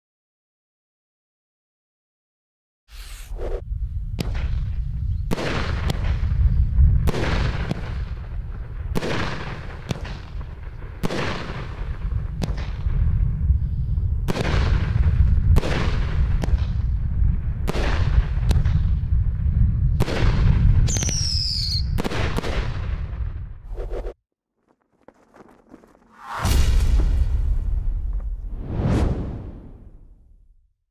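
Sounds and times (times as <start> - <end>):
falling whistle: 20.9 - 22.0
fireworks launch thumps: 26.1 - 29.9.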